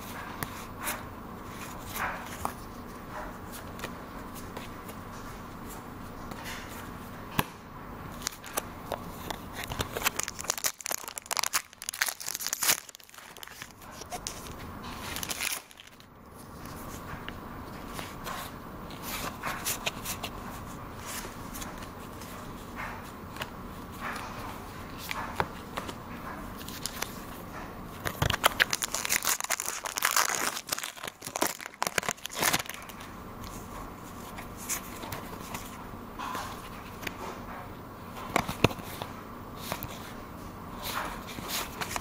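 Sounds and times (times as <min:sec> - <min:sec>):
cards being handled: 0:08.1 - 0:26.0, 0:26.6 - 0:35.8, 0:38.3 - 0:40.2, 0:40.8 - 0:42.0
foil wrapper crinkling and tearing: 0:09.7 - 0:16.1, 0:28.0 - 0:33.1.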